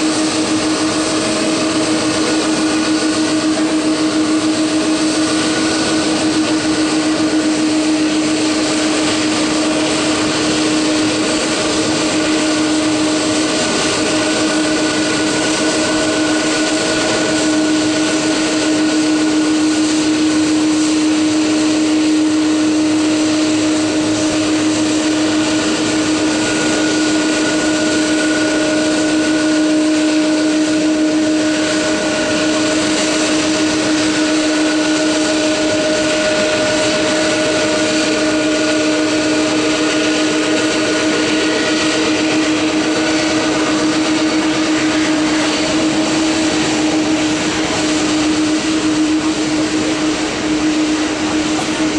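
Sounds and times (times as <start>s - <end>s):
jet engines idling: 0.0s - 51.9s.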